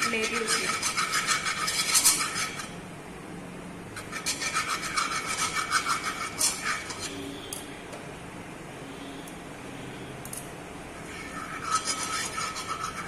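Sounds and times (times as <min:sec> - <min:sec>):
spoon scraping a frying pan: 0:00.0 - 0:02.8, 0:04.0 - 0:07.6, 0:11.0 - 0:13.0.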